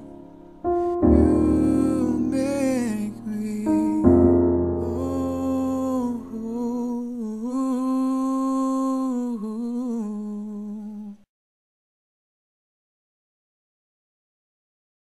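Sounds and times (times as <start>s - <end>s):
low backing sound: 0.0s - 7.5s
man humming long notes: 0.0s - 11.0s.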